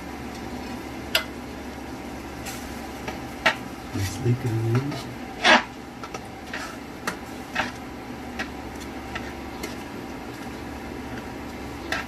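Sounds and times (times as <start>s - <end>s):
steady low hum: 0.0s - 12.0s
spatula stirring sauce in pan: 4.6s - 12.0s
spatula clicks and scrapes: 4.8s - 10.5s, 11.1s - 12.0s.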